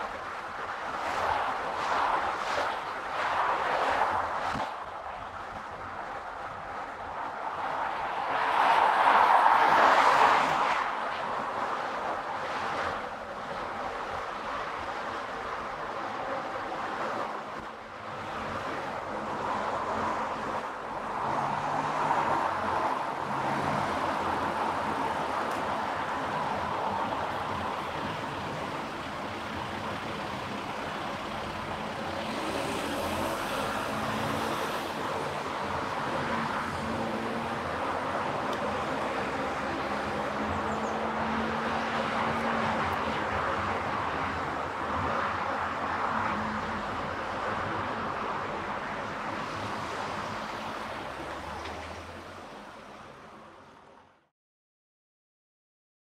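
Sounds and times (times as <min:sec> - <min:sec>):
tyre and road noise: 0:00.0 - 0:54.2
low engine hum: 0:23.3 - 0:34.6.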